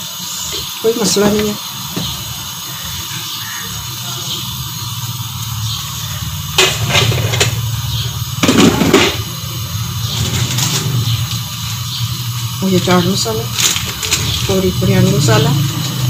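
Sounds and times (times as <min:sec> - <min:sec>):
steady low hum: 0:00.0 - 0:16.0
utensils clattering on steel pot: 0:06.6 - 0:07.6, 0:08.4 - 0:09.3.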